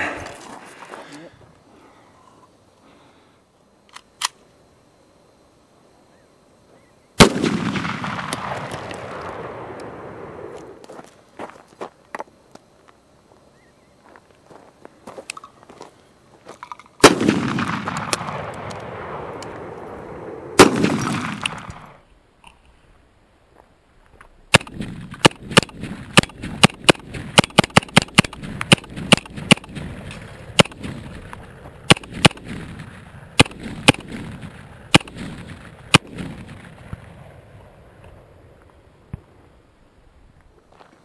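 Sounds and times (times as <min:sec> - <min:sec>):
gunshots with echo: 0:20.6 - 0:22.0, 0:24.5 - 0:31.2, 0:31.9 - 0:36.8
rapid gunfire: 0:24.5 - 0:30.0, 0:30.6 - 0:31.2, 0:31.9 - 0:36.7.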